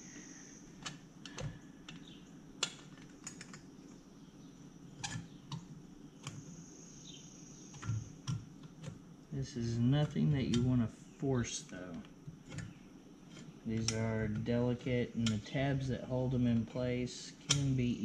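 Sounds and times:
faint steady hum: 0.0 - 18.0
light clicks and taps on metal: 9.7 - 10.8, 11.6 - 18.0.

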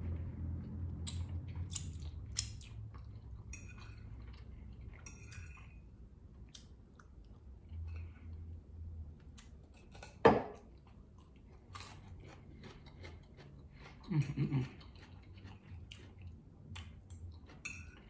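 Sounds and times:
close-up chewing: 10.7 - 17.7.

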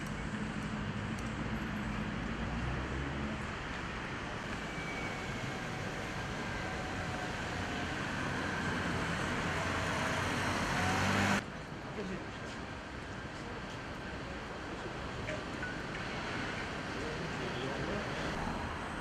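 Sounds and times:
cars passing on wet road: 0.4 - 11.4.

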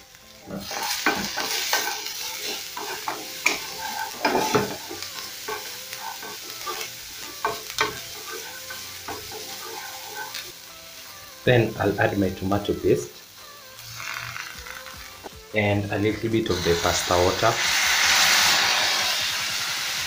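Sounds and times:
vegetables sizzling in oil: 0.0 - 20.0
wooden spatula scraping pan: 0.6 - 6.9, 7.5 - 10.4.

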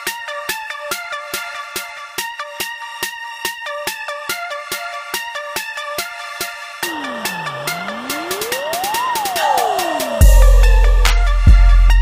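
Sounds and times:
repeating synth melody: 6.8 - 11.0
electronic music with steady beat: 6.8 - 11.7.

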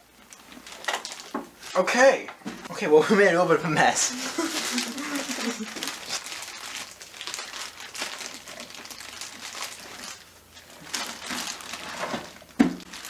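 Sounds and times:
plastic bags crinkling: 0.1 - 2.0, 3.8 - 13.0.

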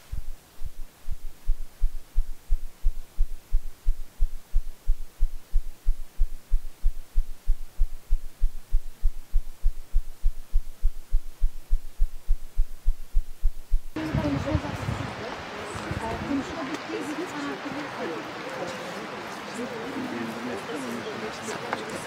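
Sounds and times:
low thudding pulse: 0.0 - 15.1.

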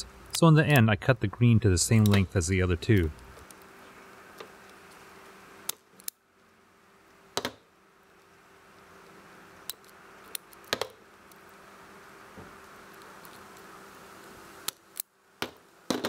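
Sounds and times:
faint steady hum: 0.0 - 16.0
wire stripper metallic clicks: 2.0 - 2.3.

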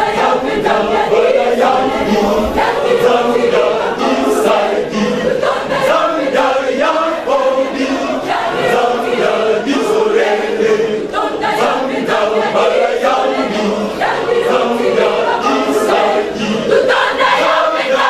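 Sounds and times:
choir and congregation singing: 0.0 - 18.0.

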